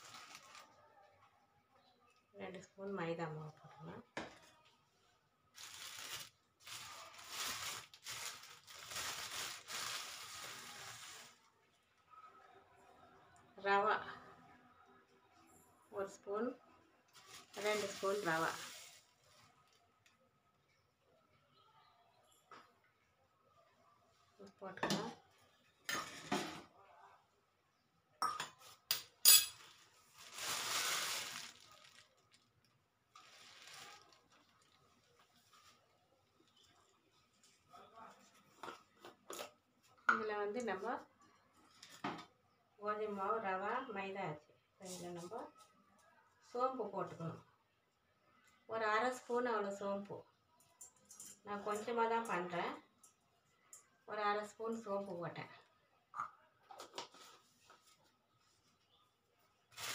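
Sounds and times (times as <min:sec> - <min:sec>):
plastic packet crinkling: 0:00.0 - 0:00.7, 0:05.5 - 0:11.4, 0:17.1 - 0:19.8, 0:29.6 - 0:35.8
metal bowls and spoons clinking: 0:28.2 - 0:29.7, 0:50.7 - 0:51.9.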